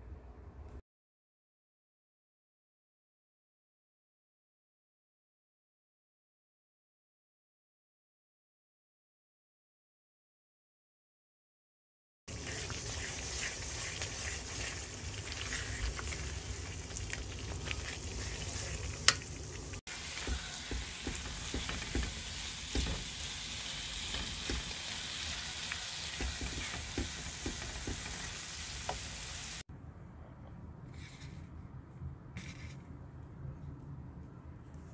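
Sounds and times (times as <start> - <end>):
spatula stirring and scraping: 12.3 - 29.6
food sizzling in a pan: 12.3 - 29.7.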